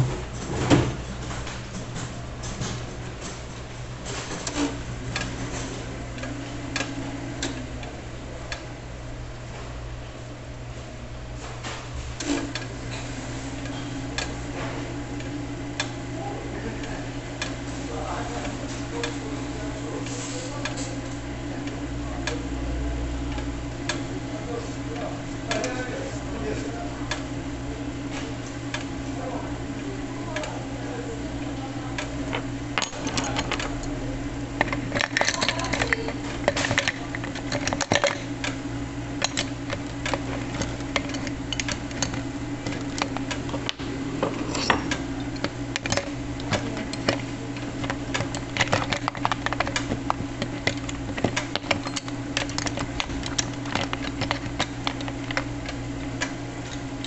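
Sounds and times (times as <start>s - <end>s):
cheese slicer motor humming: 13.6s - 57.0s.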